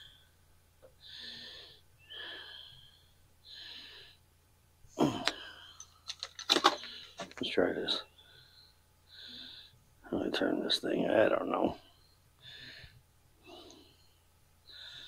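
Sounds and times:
man's wheezy breathing: 1.0 - 4.2.

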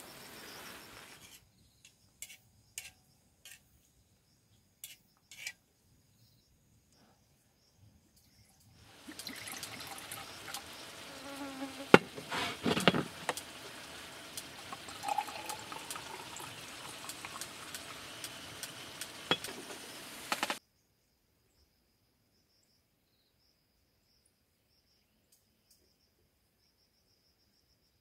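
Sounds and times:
faint high insect hum: 0.0 - 28.0
liquid pouring into a glass: 8.9 - 11.2, 12.0 - 19.6
glass clink: 14.9 - 16.5, 19.3 - 19.6.

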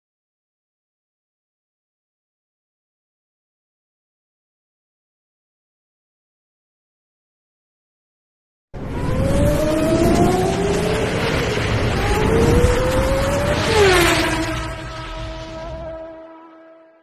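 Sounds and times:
race car engine revving: 8.8 - 16.5.

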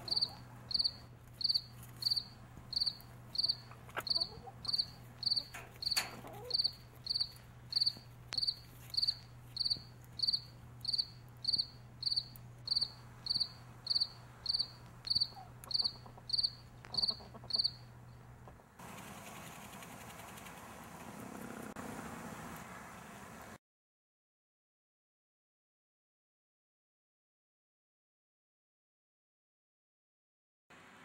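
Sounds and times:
cricket chirping: 0.1 - 17.8.

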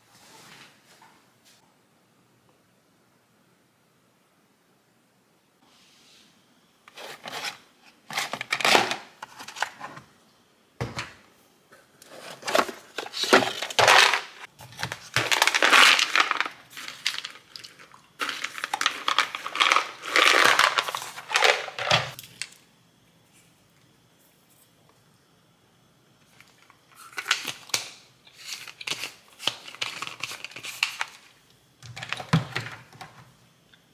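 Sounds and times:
plastic crinkling and rustling: 12.0 - 22.5, 26.3 - 33.1.

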